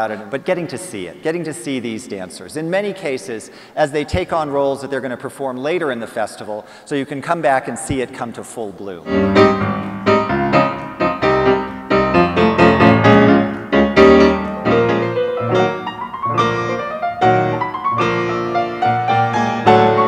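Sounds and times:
classical piano piece: 9.1 - 20.0.

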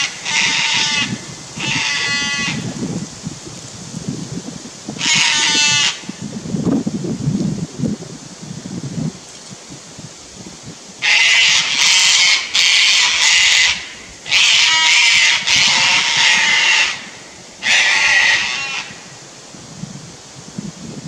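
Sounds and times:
cockatoo screeching: 0.0 - 2.7, 5.0 - 6.1, 11.0 - 19.0.

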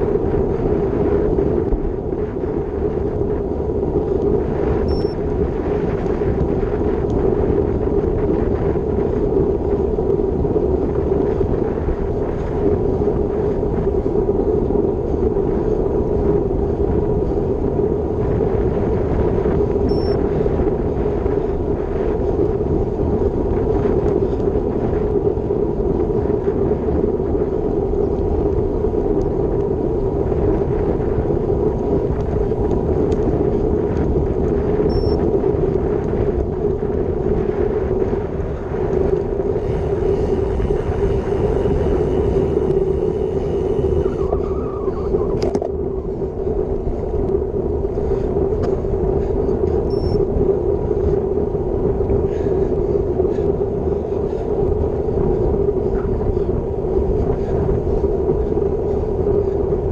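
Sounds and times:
bike tyres on asphalt: 0.0 - 59.9
wind rushing over microphone: 0.0 - 59.9.

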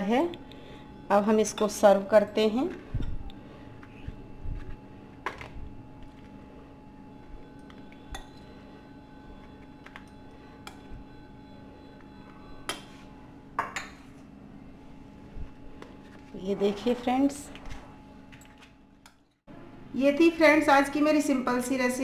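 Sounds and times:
steady low hum: 0.0 - 22.0
spoon clinking and scraping bowls: 7.6 - 8.6.

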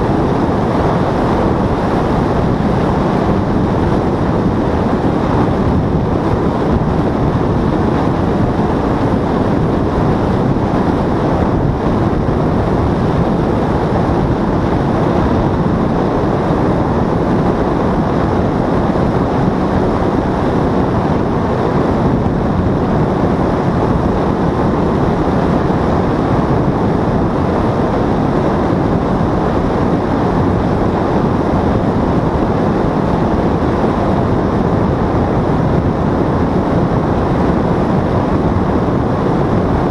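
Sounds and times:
paramotor engine and propeller: 0.0 - 39.9
wind on microphone: 0.0 - 39.9.

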